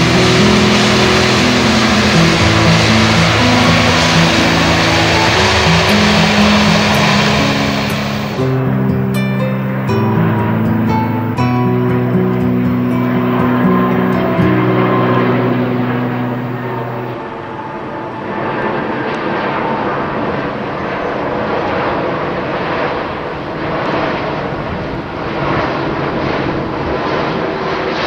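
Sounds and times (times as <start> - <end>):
background music tones: 0.0 - 18.4
airliner passing overhead: 0.0 - 28.0.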